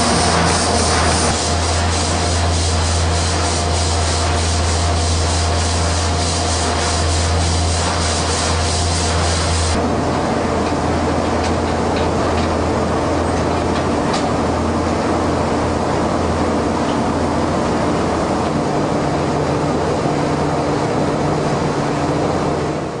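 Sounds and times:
low mechanical machinery drone: 0.0s - 23.0s.

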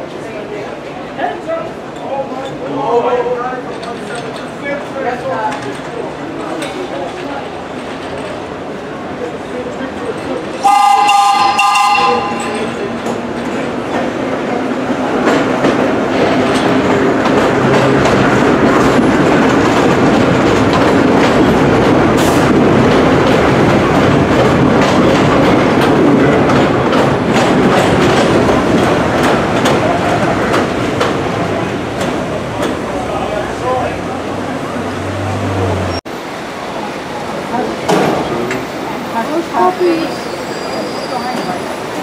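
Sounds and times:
subway train rumbling: 0.0s - 42.0s
wheels clicking over rail joints: 15.2s - 34.0s.

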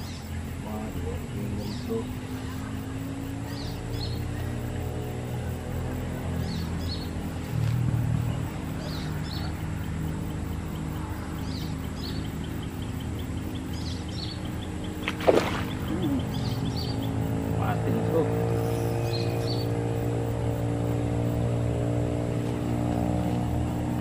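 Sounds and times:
bird chirps: 1.5s - 4.8s, 6.2s - 20.1s.

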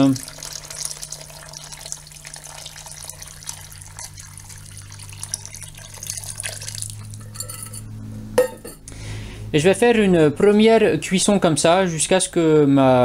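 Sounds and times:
water pouring into pot: 0.0s - 7.5s
low steady hum: 0.0s - 13.0s.

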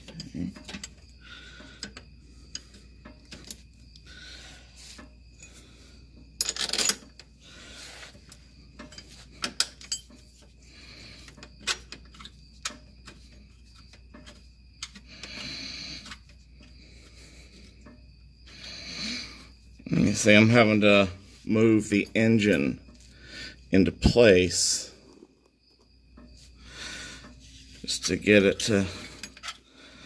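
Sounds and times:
metal parts clinking and rubbing: 0.0s - 1.1s, 1.8s - 3.8s, 6.2s - 10.6s, 11.2s - 16.7s, 27.4s - 29.6s.

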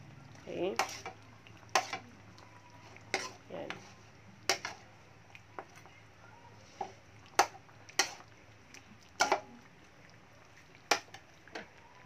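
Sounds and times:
metal ladle clinking against pan: 9.2s - 9.5s.

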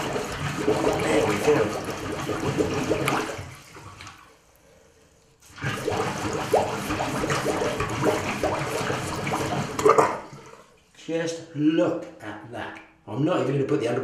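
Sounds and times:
water sloshing and gurgling in basin: 0.0s - 4.5s, 5.4s - 10.9s.

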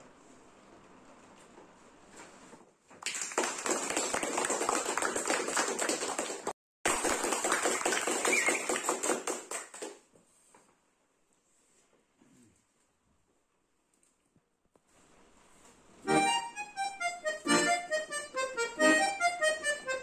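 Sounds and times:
hands clapping: 3.0s - 10.1s.

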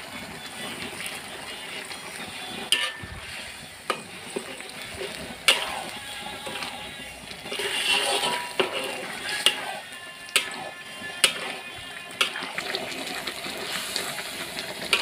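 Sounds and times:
spice paste sizzling in oil: 0.0s - 15.0s
metal spatula clacking on wok: 2.7s - 3.2s, 5.4s - 6.8s, 7.4s - 12.6s.

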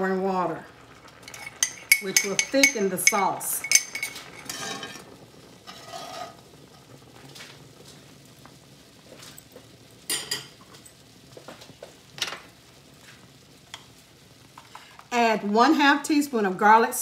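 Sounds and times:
spatula scraping skillet: 1.0s - 8.0s
utensil clink: 1.2s - 4.9s.

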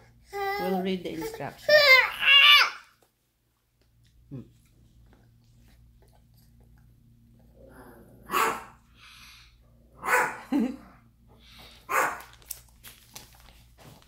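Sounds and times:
dog barking: 8.3s - 8.8s, 10.0s - 10.5s, 11.9s - 12.3s.

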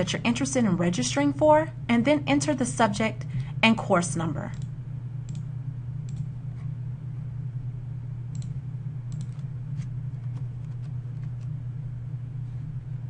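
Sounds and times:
steady low hum: 0.0s - 13.0s
computer mouse clicks: 4.5s - 4.7s, 6.1s - 6.3s, 8.3s - 9.5s
keyboard keystrokes: 8.3s - 9.5s.

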